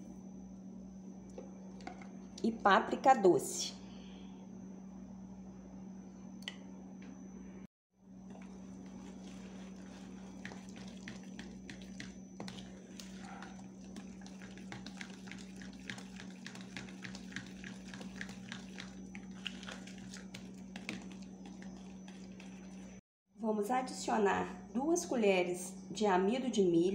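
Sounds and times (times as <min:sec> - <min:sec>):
batter wet squish: 0:08.2 - 0:23.0.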